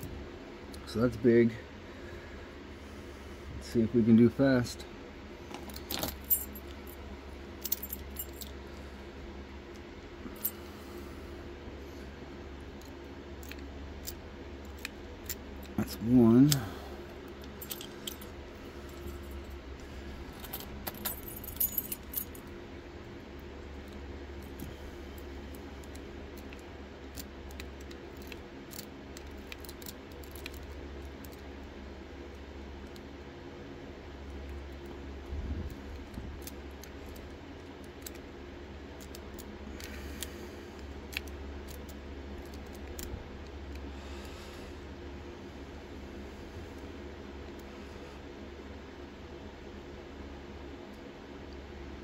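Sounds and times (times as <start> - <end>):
low steady hum: 0.0 - 52.0
metallic clicks of lock picks: 25.8 - 31.4.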